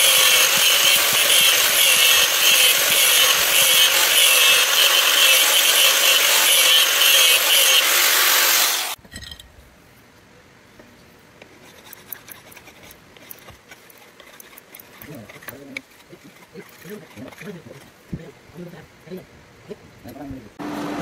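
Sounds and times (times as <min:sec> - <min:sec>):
power grinder grinding steel: 0:00.0 - 0:09.0, 0:11.7 - 0:17.9.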